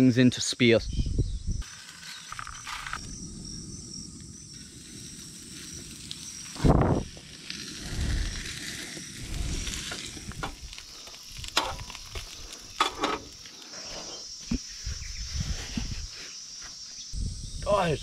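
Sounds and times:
fish sizzling in oil: 1.7s - 14.0s.

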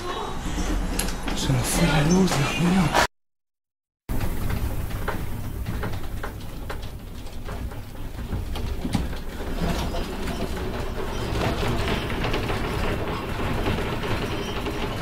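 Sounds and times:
furniture and objects rattling: 4.1s - 15.0s.

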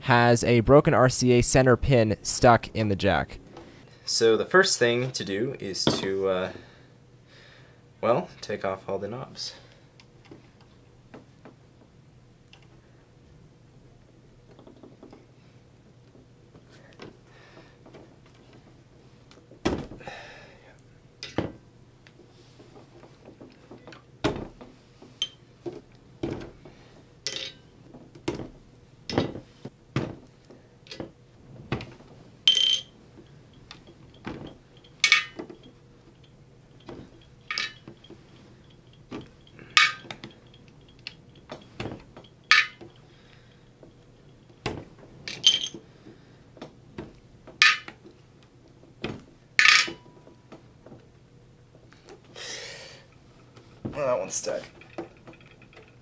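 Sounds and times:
metallic clinks: 33.5s - 43.6s.

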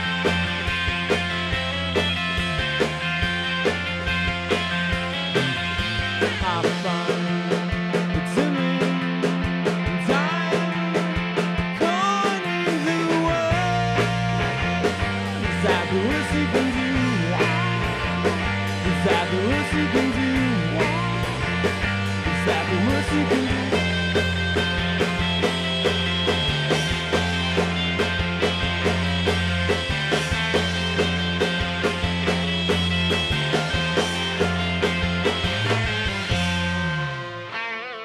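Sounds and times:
bass guitar: 0.0s - 38.0s
drums: 0.0s - 38.0s
electric guitars: 0.0s - 38.0s
people singing: 15.5s - 18.0s, 22.3s - 23.9s.

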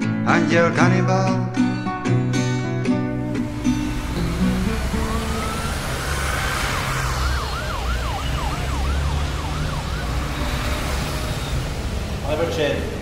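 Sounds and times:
steady low rumble: 3.1s - 7.6s
emergency vehicle siren: 3.2s - 12.3s.

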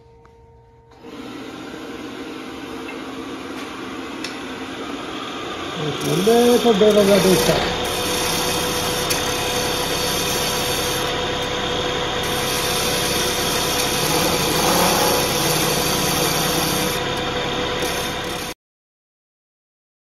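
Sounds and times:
lathe motor humming: 0.9s - 18.6s
gouge cutting spinning wood: 4.3s - 18.6s.

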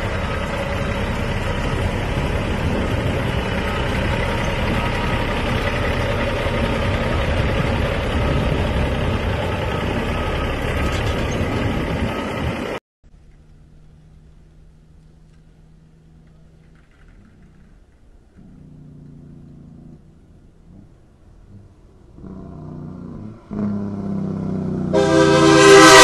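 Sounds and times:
truck diesel engine running: 0.0s - 26.0s.

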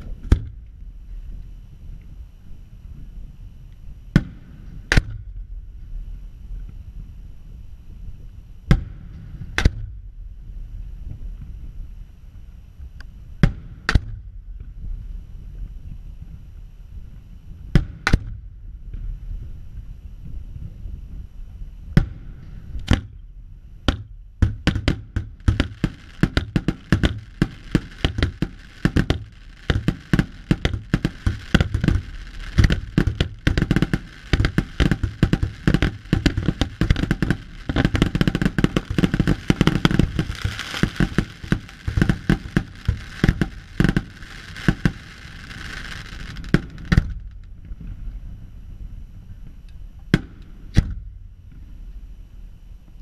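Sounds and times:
rapid barrage of firework bangs: 4.1s - 5.3s, 13.4s - 14.9s, 17.7s - 19.3s, 21.9s - 23.2s, 23.8s - 48.4s
firework shell bursts: 23.9s - 47.2s.

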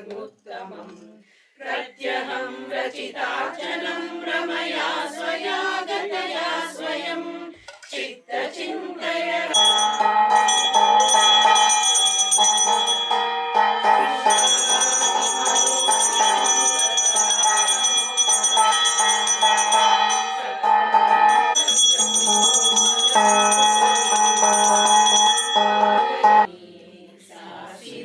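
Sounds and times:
women chanting a hymn: 0.0s - 9.8s, 13.8s - 20.8s, 21.5s - 28.0s
hand bell ringing: 9.5s - 26.5s.

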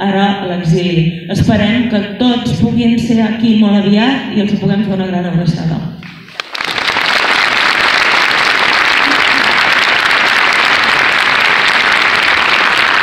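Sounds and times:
large crowd applauding: 6.0s - 13.0s.

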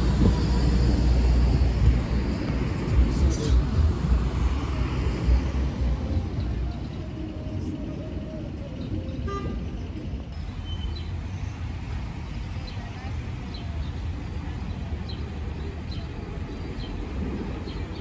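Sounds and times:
tram rumbling past: 0.0s - 18.0s
small birds chirping: 12.3s - 18.0s.

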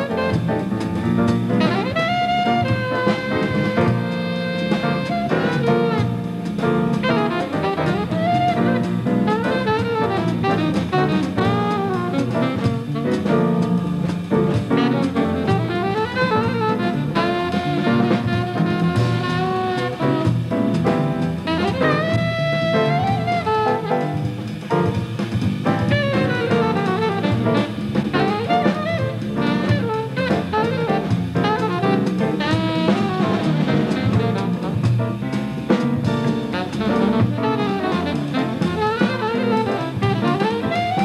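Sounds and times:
alto saxophone playing: 0.0s - 41.0s
jazz piano bass and drums: 0.0s - 41.0s.

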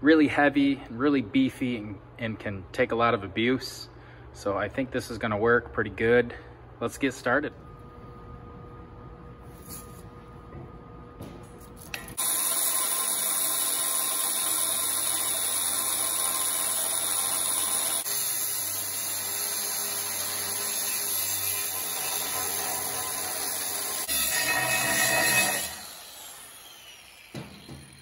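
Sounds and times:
angle grinder cutting steel pipe: 12.0s - 28.0s.

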